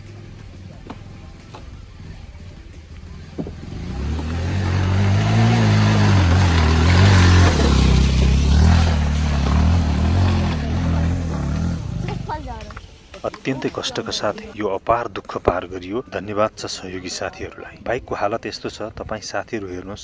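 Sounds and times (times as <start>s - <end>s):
motorcycle engine revving: 0.0s - 13.0s.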